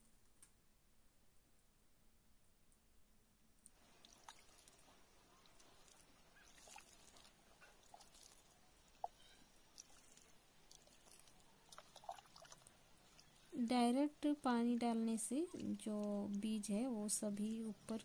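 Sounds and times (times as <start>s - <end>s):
water pattering on soil: 3.7s - 13.6s, 14.9s - 18.0s.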